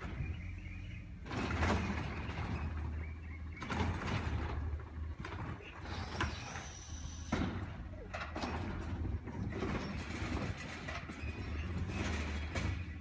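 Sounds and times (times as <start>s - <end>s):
diesel truck engine running: 0.0s - 13.0s
trash cart clattering: 0.0s - 13.0s.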